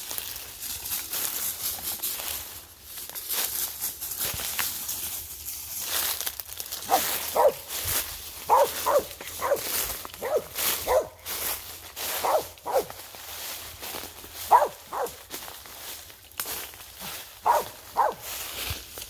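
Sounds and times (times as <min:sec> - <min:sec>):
footsteps crunching through dry leaves: 0:00.0 - 0:19.0
dog barking: 0:06.9 - 0:07.7, 0:08.4 - 0:11.2, 0:12.2 - 0:13.0, 0:14.4 - 0:15.2, 0:17.4 - 0:18.3.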